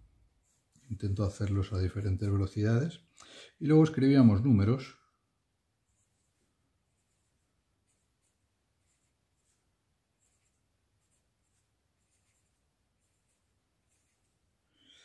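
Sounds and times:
pen nib scratching paper: 5.9s - 14.5s.

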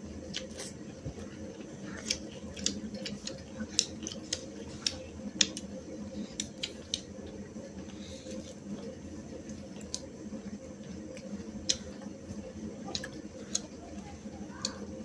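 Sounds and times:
wet chewing and lip smacks: 0.2s - 8.0s, 12.8s - 13.8s.

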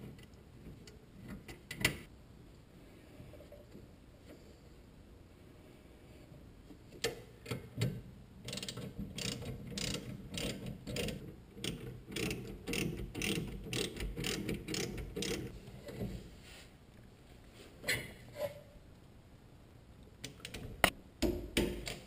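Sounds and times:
socket ratchet clicking: 8.5s - 15.5s.

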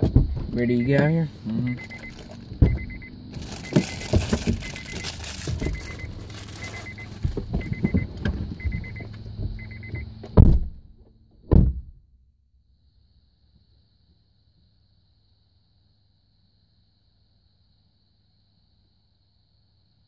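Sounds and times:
car doors shutting: 0.0s - 11.9s
car door warning chime: 0.6s - 10.2s
people shifting in seats: 1.7s - 10.0s.

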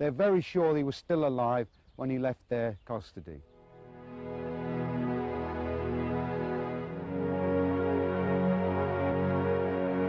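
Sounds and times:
ambient synthesizer chords: 3.6s - 10.0s.

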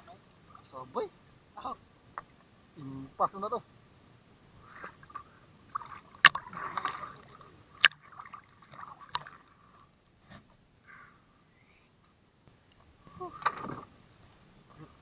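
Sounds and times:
water sloshing and splashing: 4.7s - 10.0s, 13.3s - 14.0s.

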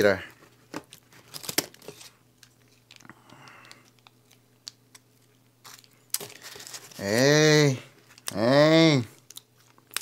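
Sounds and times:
paper rustling: 5.6s - 7.2s.

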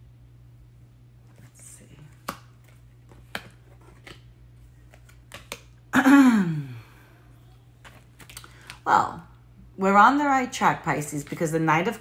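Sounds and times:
cards clicking and tapping: 2.1s - 5.8s.

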